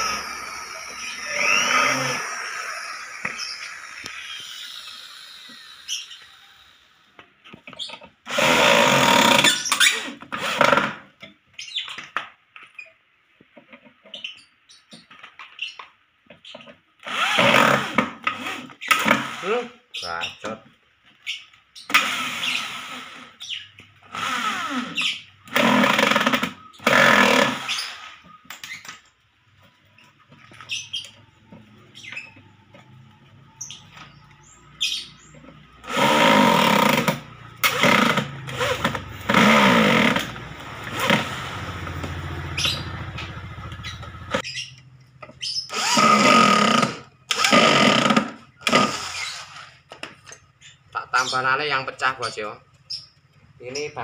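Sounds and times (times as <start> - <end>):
electric drill boring into wood: 0.0 - 6.8, 8.2 - 11.0, 17.0 - 19.8, 21.9 - 28.8, 35.8 - 44.4, 45.7 - 49.8.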